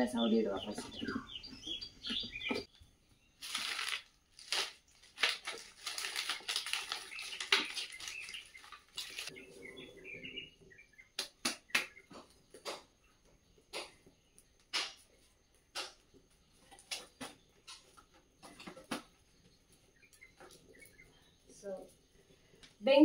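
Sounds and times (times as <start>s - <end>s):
firewood crackling and snapping: 3.4s - 9.3s
sticks being handled: 3.4s - 9.3s.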